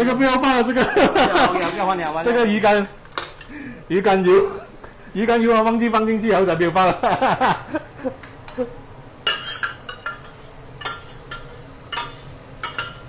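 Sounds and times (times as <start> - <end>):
utensil clinking on metal pot: 9.3 - 13.0.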